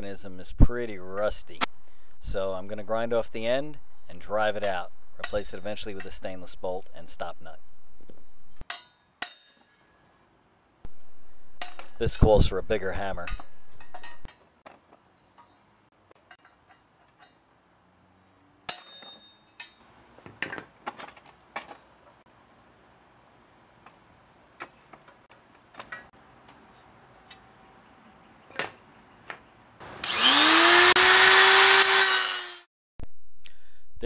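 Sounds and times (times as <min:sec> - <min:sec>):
hammer striking metal punch: 0:08.6 - 0:09.8, 0:18.7 - 0:19.8
angle grinder grinding steel: 0:29.8 - 0:32.7.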